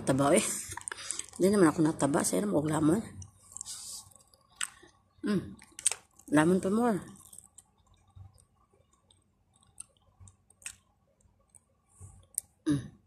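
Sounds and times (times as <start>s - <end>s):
person chewing food: 0.5s - 1.4s, 3.1s - 5.0s, 5.6s - 6.3s, 7.1s - 12.6s.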